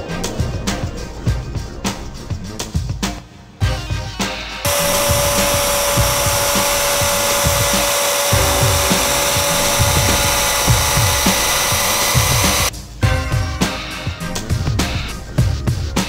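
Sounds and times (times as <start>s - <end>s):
background music: 0.0s - 16.0s
router cutting: 4.7s - 12.7s.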